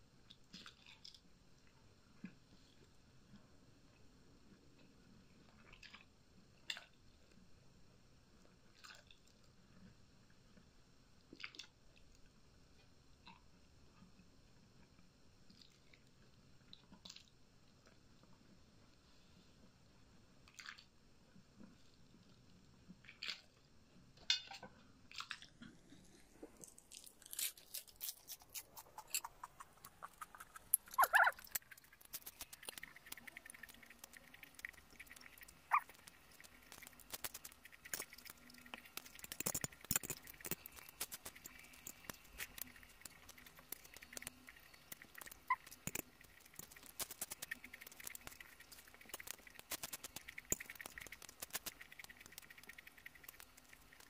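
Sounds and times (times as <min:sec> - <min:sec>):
chewing food close up: 0:00.3 - 0:01.3, 0:08.7 - 0:09.9, 0:25.1 - 0:54.0.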